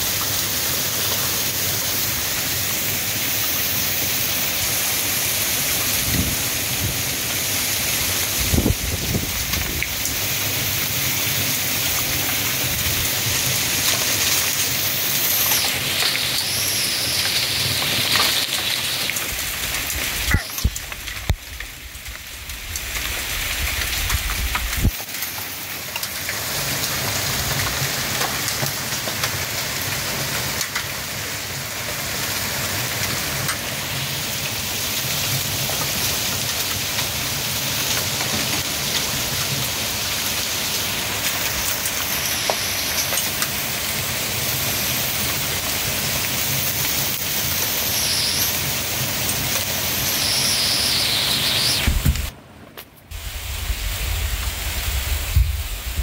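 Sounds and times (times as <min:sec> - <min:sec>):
heavy rain pouring: 0:00.0 - 0:56.0
gusting wind: 0:03.6 - 0:25.2, 0:40.3 - 0:56.0.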